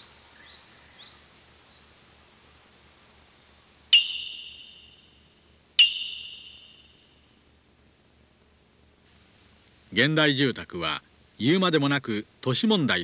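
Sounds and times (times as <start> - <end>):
faint bird chirps: 3.9 - 7.4.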